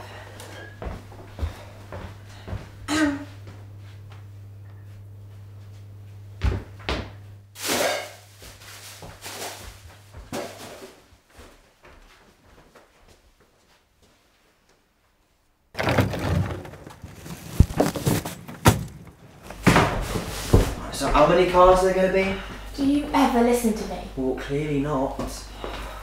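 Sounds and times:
low steady hum: 0.0 - 10.7, 15.8 - 26.0
plastic bin bag rustling: 15.8 - 21.0.

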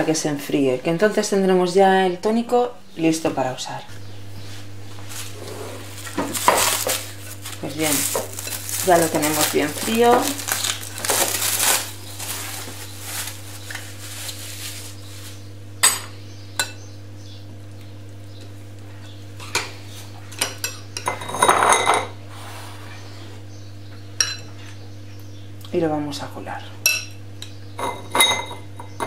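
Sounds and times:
cling film crinkling: 5.2 - 15.4.

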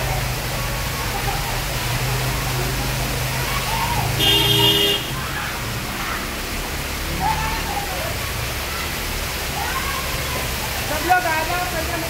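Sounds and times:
water torrent rushing: 0.0 - 12.0
vehicle horn: 4.2 - 5.2.

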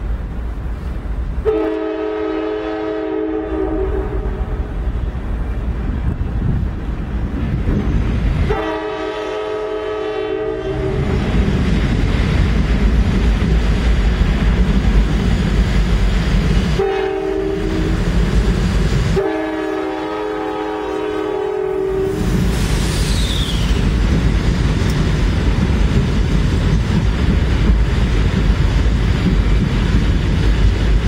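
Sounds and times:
engines and wheels rumbling: 0.0 - 2.0, 3.4 - 31.0
locomotive air horn blasts: 1.4 - 4.6, 8.5 - 11.2, 16.8 - 18.0, 19.2 - 22.4.

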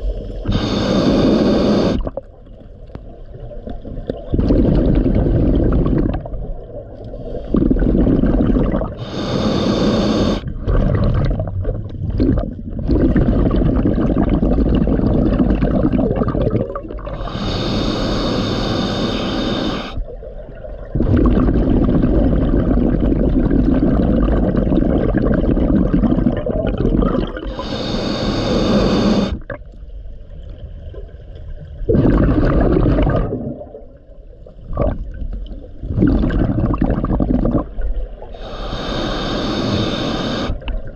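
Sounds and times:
exhaled bubbles rumbling: 0.0 - 17.4, 19.4 - 40.9
regulator hissing inhale: 0.4 - 2.0, 7.0 - 7.9, 9.0 - 10.5, 17.1 - 20.0, 27.4 - 29.4, 38.3 - 40.6.

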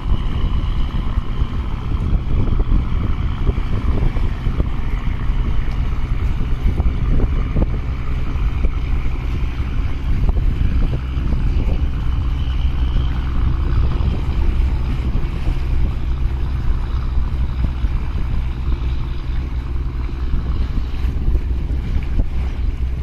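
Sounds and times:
boat engine rumbling: 0.0 - 23.0
water splashing: 0.0 - 23.0
wind buffeting microphone: 0.0 - 23.0.

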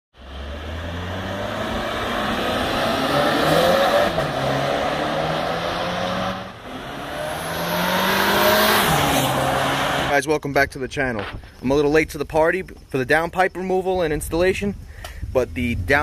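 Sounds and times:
car engine accelerating: 0.1 - 10.1.

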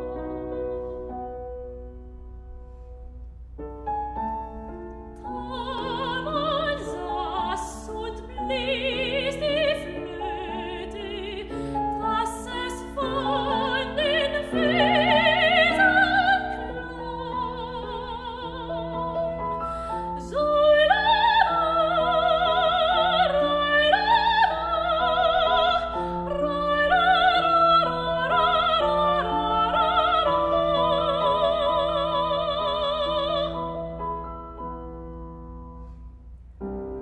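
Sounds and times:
grand piano: 0.0 - 37.0
soprano singing with vibrato: 5.2 - 34.0.

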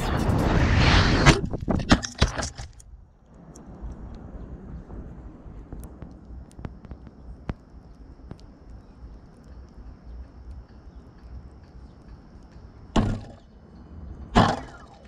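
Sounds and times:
wind rumble on microphone: 0.0 - 15.0
faint ticks: 5.6 - 12.9
loud thumps with rustle: 13.0 - 13.4.

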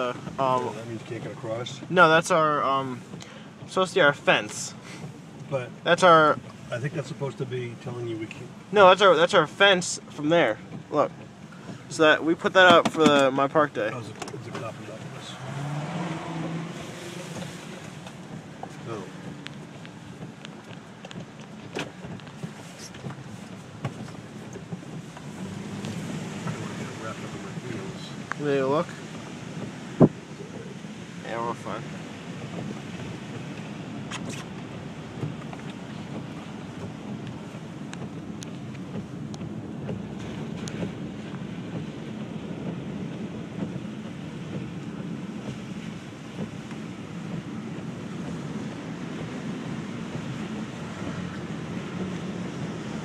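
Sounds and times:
car engine and tyres on wet road: 0.0 - 53.0
light ticks: 3.1 - 3.7, 17.4 - 26.7, 27.6 - 28.4, 32.5 - 45.6
sharp clicks and knocks: 12.5 - 15.1, 17.3 - 26.7.

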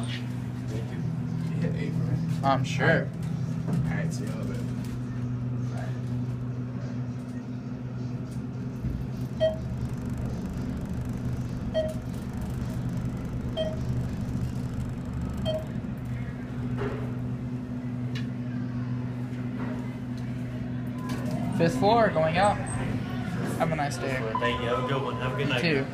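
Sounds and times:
elevator cab hum: 3.1 - 25.9
short electronic beeps: 9.4 - 15.8, 24.4 - 25.9.

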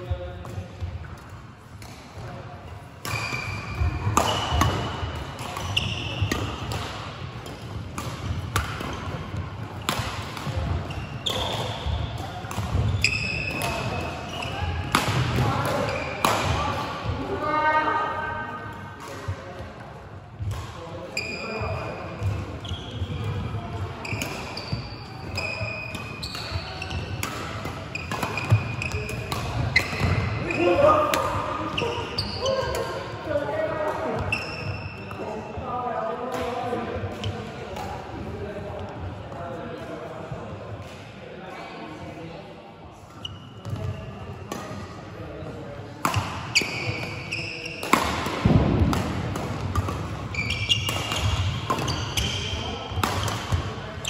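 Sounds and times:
shoes squeaking on court floor: 2.7 - 6.8, 7.4 - 15.0, 15.7 - 16.4, 21.1 - 32.9, 34.1 - 35.6, 43.1 - 44.6, 46.1 - 48.6, 49.3 - 54.0
rackets hitting shuttlecock: 3.0 - 17.1, 23.2 - 33.1, 46.0 - 54.0.

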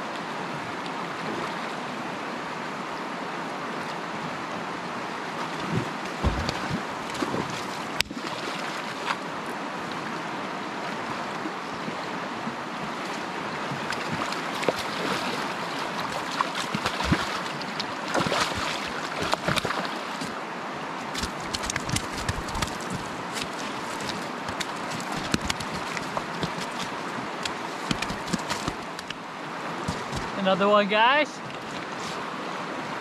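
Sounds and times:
river rushing over rocks: 0.0 - 33.0
sharp clicks and knocks: 24.5 - 26.8, 27.4 - 29.2.

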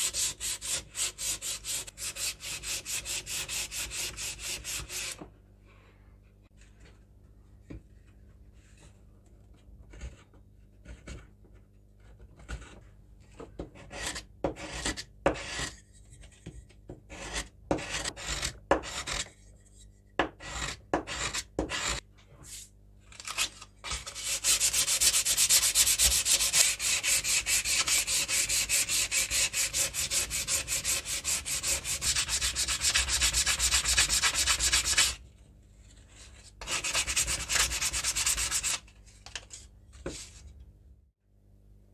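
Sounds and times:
sandpaper rubbing on wood: 24.2 - 35.2, 36.6 - 38.8.

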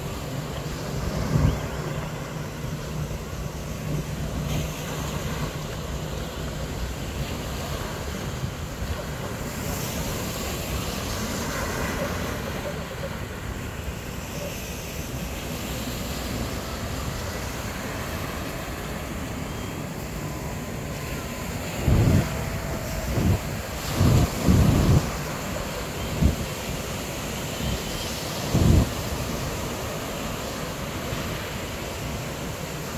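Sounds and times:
waves washing onto shore: 0.0 - 32.9
low wind gusts buffeting microphone: 14.4 - 32.9
wind rushing over microphone: 21.2 - 30.1.

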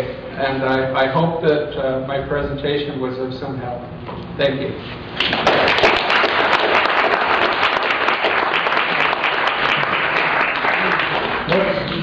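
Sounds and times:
audience applauding: 5.3 - 12.0.

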